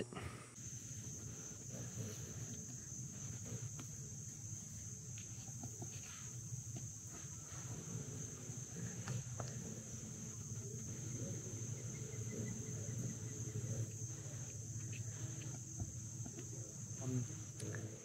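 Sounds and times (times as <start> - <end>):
insects droning: 0.0 - 18.0.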